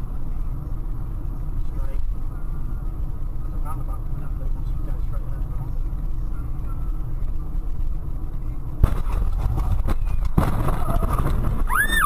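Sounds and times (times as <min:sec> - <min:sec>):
road rumble inside car: 0:00.0 - 0:12.0
car crash: 0:08.8 - 0:12.0.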